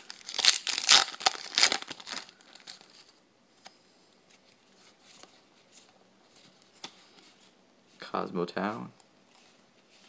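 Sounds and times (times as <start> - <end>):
foil wrapper crinkling and tearing: 0.0 - 3.0.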